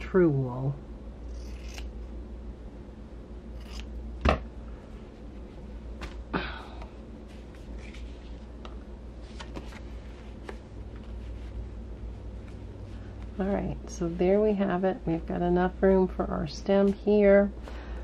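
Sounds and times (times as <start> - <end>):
steady low hum: 0.0 - 18.0
fabric and paper rustling: 7.3 - 8.5, 9.2 - 11.6.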